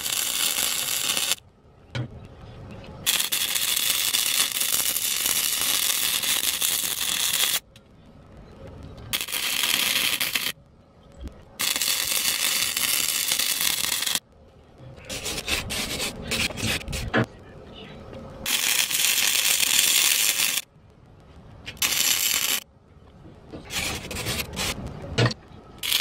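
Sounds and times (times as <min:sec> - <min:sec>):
arc welding crackling hiss: 0:00.0 - 0:01.4, 0:03.0 - 0:07.6, 0:09.0 - 0:10.6, 0:11.6 - 0:14.2, 0:18.4 - 0:20.7, 0:21.6 - 0:22.6, 0:23.6 - 0:25.0, 0:25.8 - 0:26.0.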